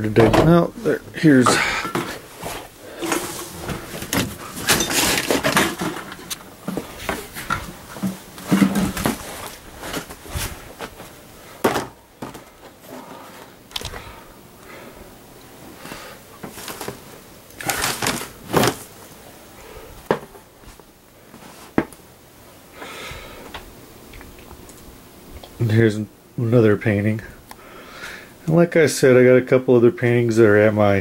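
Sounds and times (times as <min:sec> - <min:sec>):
rustling of bags and clothes: 0:00.5 - 0:14.1, 0:15.8 - 0:19.2
knocks and thumps: 0:03.0 - 0:09.3.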